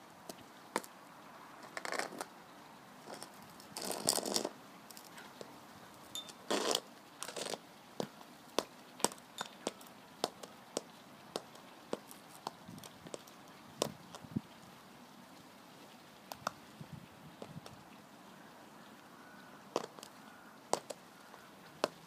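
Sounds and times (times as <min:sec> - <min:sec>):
boot sole scraping concrete: 0:01.6 - 0:02.3, 0:03.0 - 0:05.1, 0:06.3 - 0:08.1, 0:19.8 - 0:20.1
heel clicks on concrete: 0:20.7 - 0:21.0.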